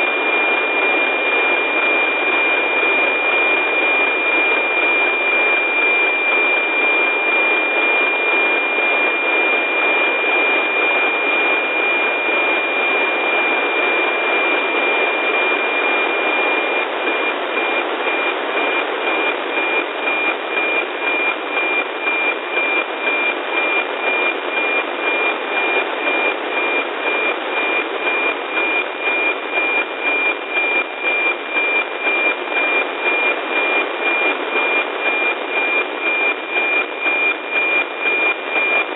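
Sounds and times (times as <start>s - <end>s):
steady high tone pulsing: 0.0s - 38.9s
loud radio hiss: 8.6s - 38.5s.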